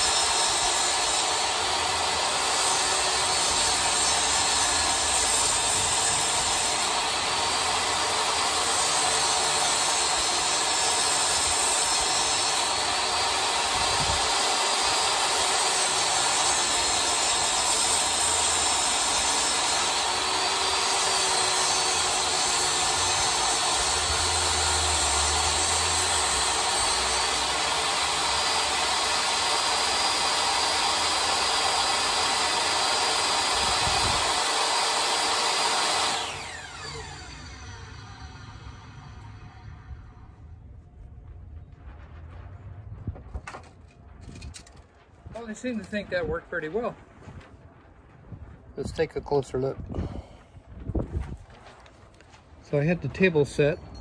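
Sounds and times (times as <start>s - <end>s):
table saw motor whining: 0.0s - 40.4s.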